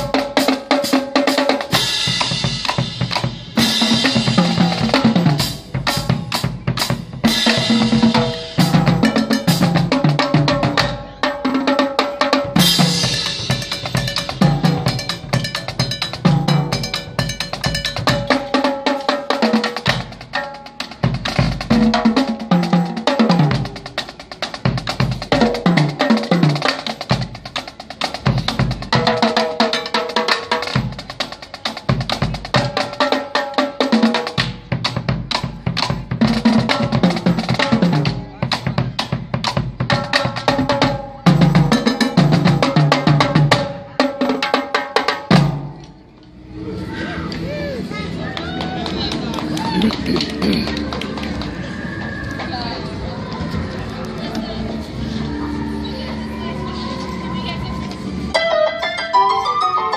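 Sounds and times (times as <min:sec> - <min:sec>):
pitched notes: 0:58.3 - 0:59.9.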